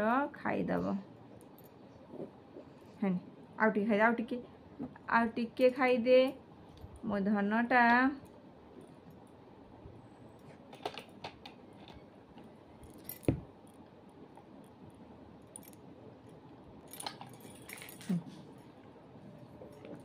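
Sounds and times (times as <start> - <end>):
objects clicking and knocking: 10.4 - 14.6.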